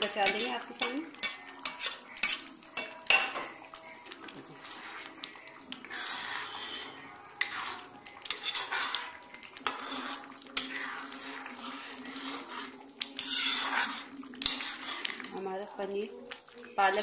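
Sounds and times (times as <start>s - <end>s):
spoon clinking and scraping pan: 0.0s - 3.6s, 5.8s - 15.4s
metal spoon stirring thick gravy: 0.0s - 17.0s.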